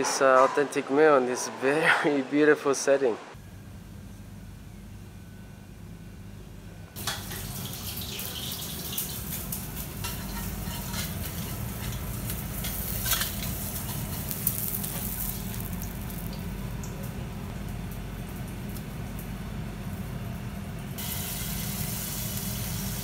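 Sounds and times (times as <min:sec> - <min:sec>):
food sizzling as it fries: 0:07.0 - 0:23.0.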